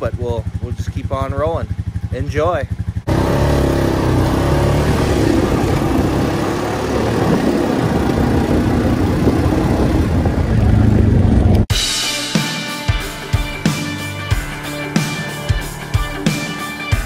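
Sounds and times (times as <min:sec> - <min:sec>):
atv engine running: 0:00.0 - 0:11.7, 0:13.4 - 0:17.0.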